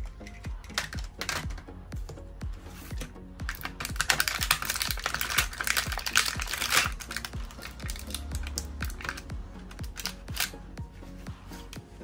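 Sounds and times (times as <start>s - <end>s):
background music with steady beat: 0.0s - 12.0s
plastic pieces clicking and rattling: 0.2s - 1.7s, 3.4s - 10.6s.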